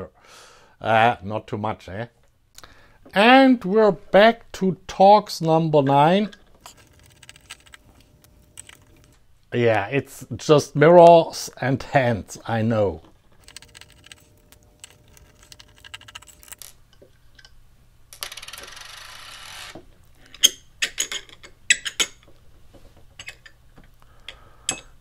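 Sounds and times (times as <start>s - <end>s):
tools clicking on metal: 6.2s - 9.2s, 24.2s - 25.0s.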